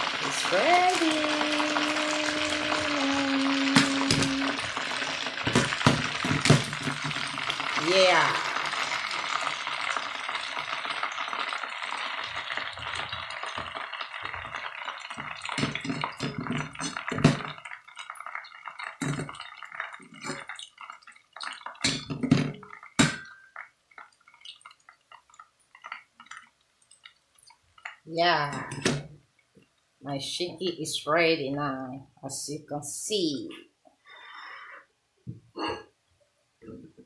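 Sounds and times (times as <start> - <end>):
hot oil sizzling: 0.0 - 29.2.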